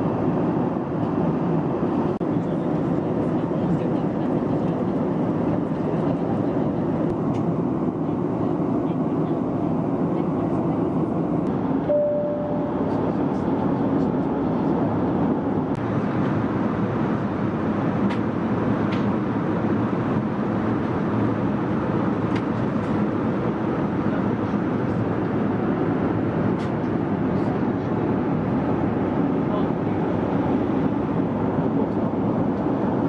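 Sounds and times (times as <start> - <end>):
airplane cabin roar: 0.0 - 33.0
brief steady tone: 11.9 - 13.0.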